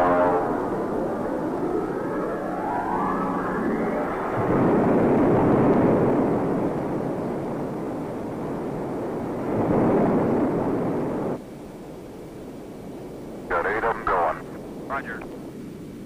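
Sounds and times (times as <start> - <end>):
rocket engines roaring: 0.0 - 8.4, 13.4 - 15.4.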